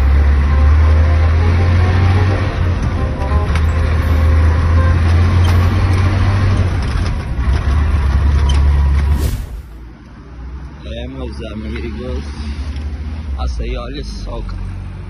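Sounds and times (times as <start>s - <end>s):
truck engine humming: 0.0s - 11.6s.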